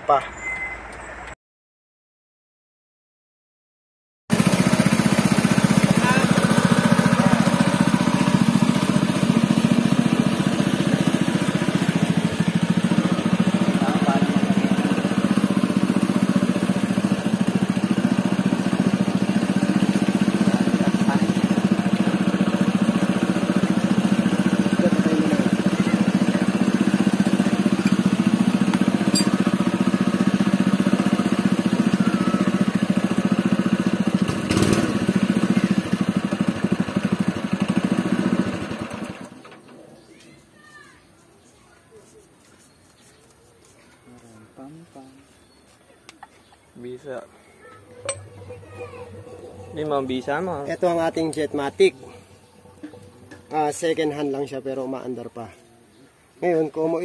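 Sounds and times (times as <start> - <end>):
small gasoline engine running: 4.3 - 39.8, 47.8 - 54.6.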